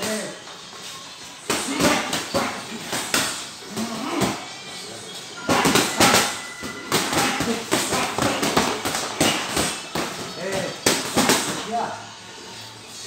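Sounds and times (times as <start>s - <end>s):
boxing gloves punches landing: 1.5s - 3.4s, 5.4s - 11.6s.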